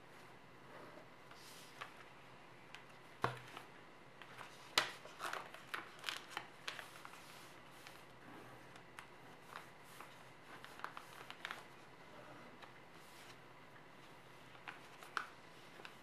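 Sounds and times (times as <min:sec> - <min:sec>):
paper folding and creasing: 0:03.5 - 0:08.0, 0:09.0 - 0:11.9.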